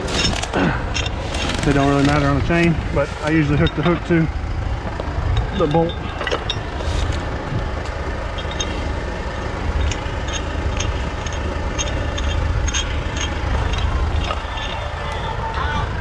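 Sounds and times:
chain clinking: 0.0 - 16.0
truck engine idling: 0.0 - 16.0.

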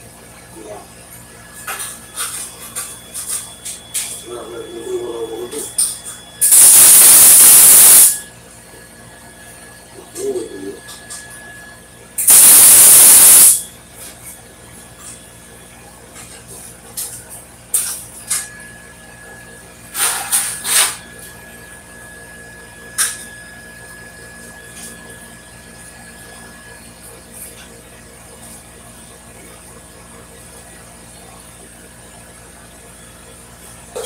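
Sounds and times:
steady low hum: 0.0 - 34.0
welder arc hissing: 6.4 - 8.3, 12.2 - 13.7.

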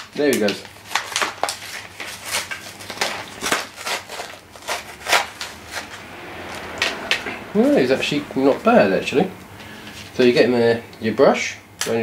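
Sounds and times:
plastic packaging crackling: 0.0 - 5.9.

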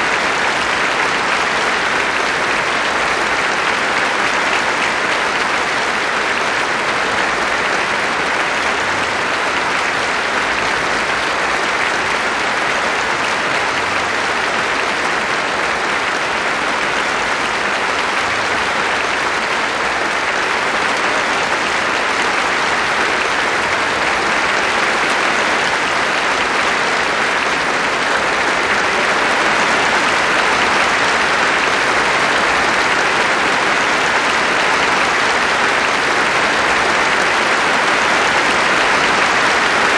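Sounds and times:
audience applauding: 0.0 - 39.9.

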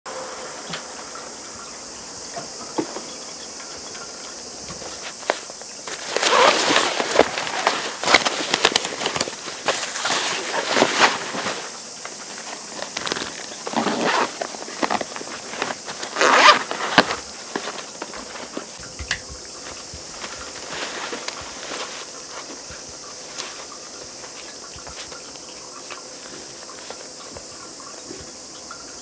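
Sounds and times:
fabric bag rustling and scraping: 4.8 - 18.8, 19.4 - 27.5.

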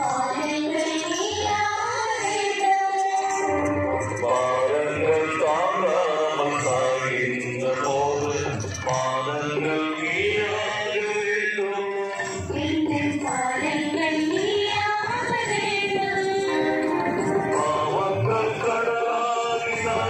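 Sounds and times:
musical accompaniment: 3.2 - 7.7, 15.5 - 20.0
person singing a hymn: 15.4 - 20.0.

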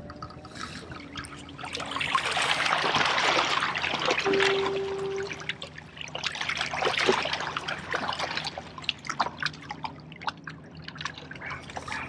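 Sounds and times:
drips and little splashes: 0.0 - 12.0
small waves lapping on rocks: 0.6 - 4.4.

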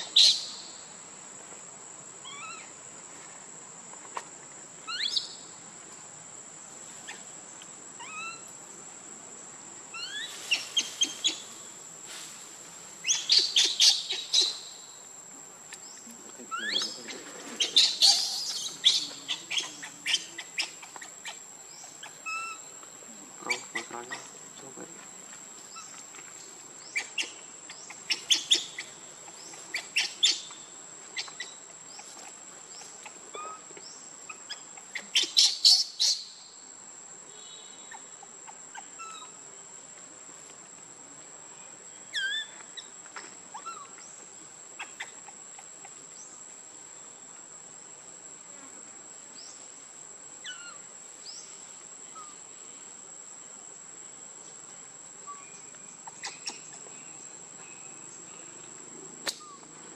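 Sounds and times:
high-pitched insect drone: 16.4 - 25.0.

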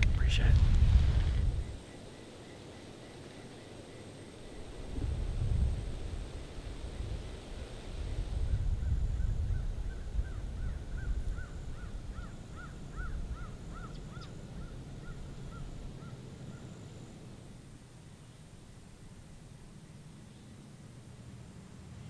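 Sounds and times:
low rumbling noise: 0.0 - 1.8, 4.6 - 11.0.

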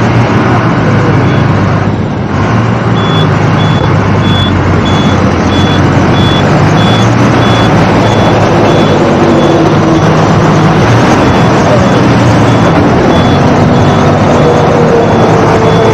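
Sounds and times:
lorry rumbling at highway speed: 0.0 - 15.9
short high beeps: 3.0 - 9.6.

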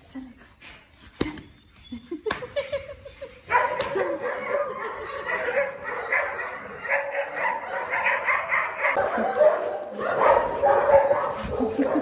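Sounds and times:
dogs barking and yipping: 3.4 - 12.0.

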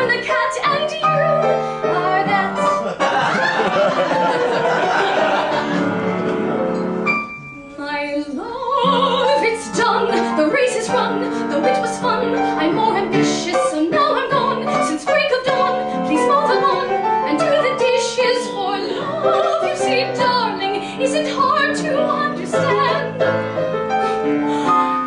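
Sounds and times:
woman singing opera: 0.0 - 2.8, 7.6 - 23.2
piano accompaniment: 0.0 - 25.0.

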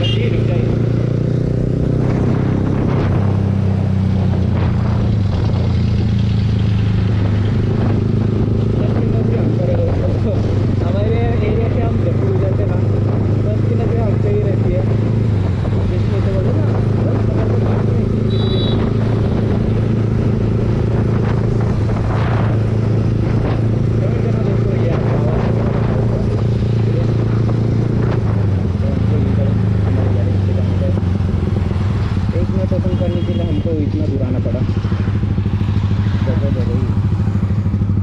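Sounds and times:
motorcycle engine cruising: 0.0 - 38.0.

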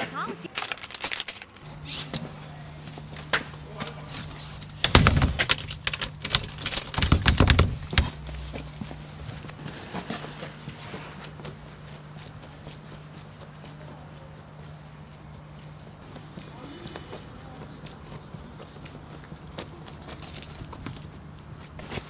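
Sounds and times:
steady low hum: 0.0 - 22.0
keys jangling: 0.5 - 2.2, 2.8 - 3.3, 4.1 - 8.4, 20.1 - 21.2
door lock clicks: 4.4 - 8.1
door and lock knocks: 4.7 - 8.1
footsteps on paving: 7.7 - 22.0.

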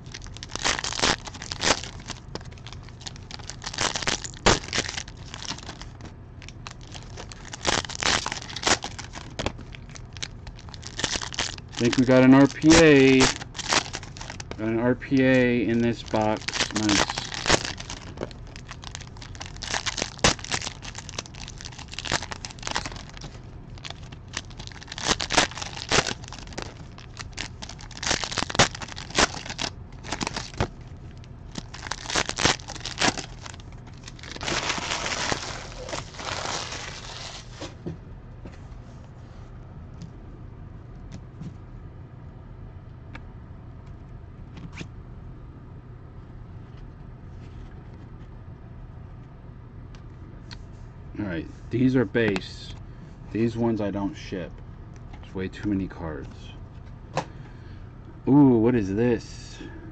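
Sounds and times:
card pack wrappers ripping: 0.0 - 30.7, 31.5 - 37.6
cards being handled: 11.8 - 18.6.

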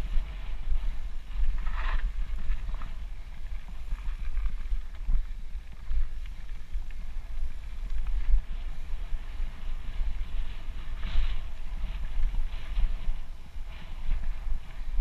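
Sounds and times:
bike clicks and rattles: 0.0 - 15.0
wind buffeting microphone: 0.0 - 15.0.

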